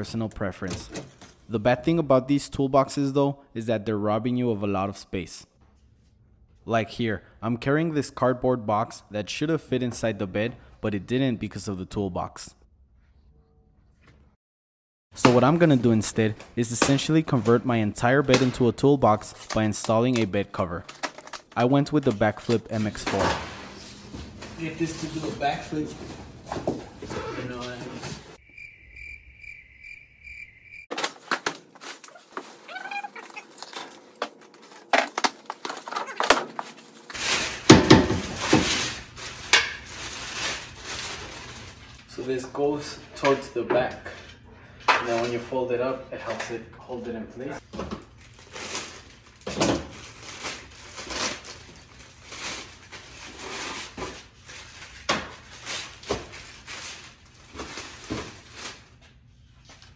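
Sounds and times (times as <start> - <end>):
cricket chirping: 28.4 - 30.9
plastic wrapping crinkling: 30.9 - 42.1, 48.1 - 59.0.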